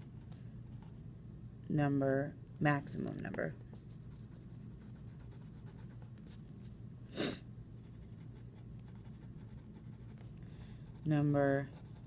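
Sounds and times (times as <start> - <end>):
low background hum: 0.0 - 12.0
person sniffing: 7.1 - 7.5.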